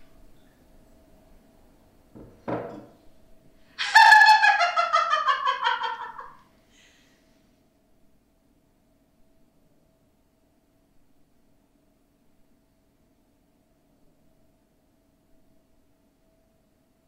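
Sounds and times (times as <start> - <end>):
woman laughing loudly: 3.8 - 6.4.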